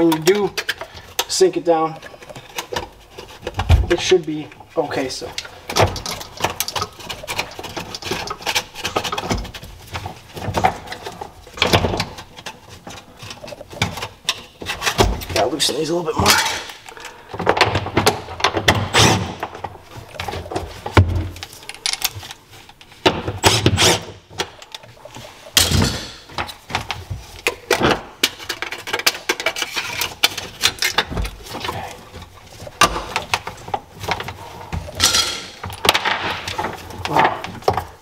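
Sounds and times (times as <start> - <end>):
metal tools clinking: 28.4 - 37.2.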